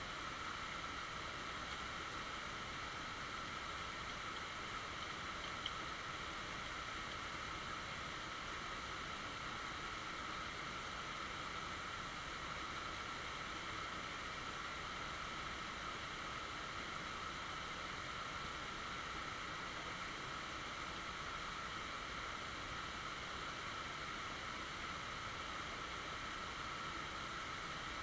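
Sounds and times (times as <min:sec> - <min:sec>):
creek running over rocks: 0:00.1 - 0:18.6
small tick: 0:01.6 - 0:01.9, 0:03.9 - 0:07.3.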